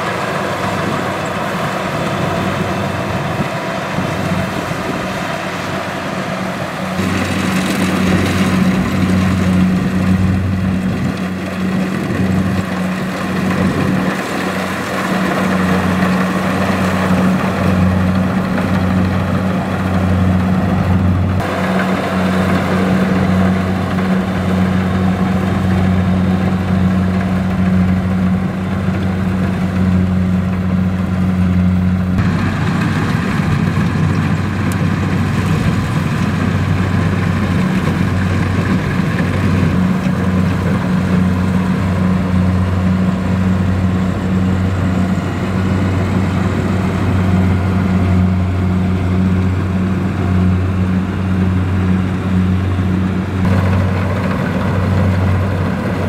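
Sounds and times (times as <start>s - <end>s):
combine harvester engine hum: 0.0s - 56.0s
cutting and threshing machinery: 0.0s - 56.0s.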